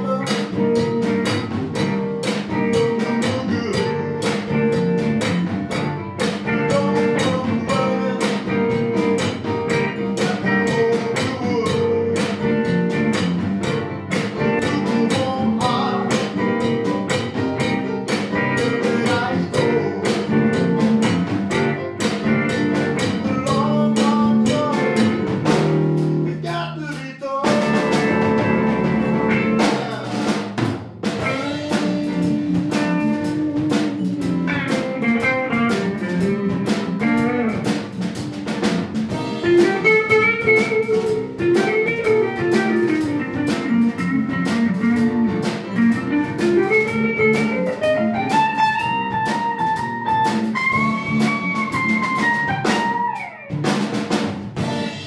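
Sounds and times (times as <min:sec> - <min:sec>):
instrumental blues band: 0:00.0 - 0:55.0.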